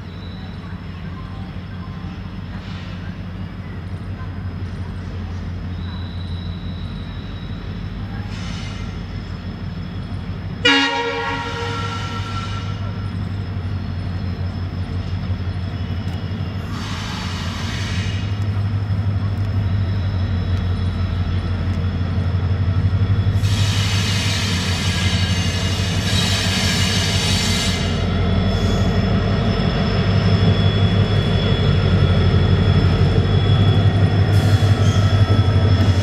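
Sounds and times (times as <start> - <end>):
locomotive engine drone: 0.0 - 36.0
loud horn blast: 10.6 - 12.9.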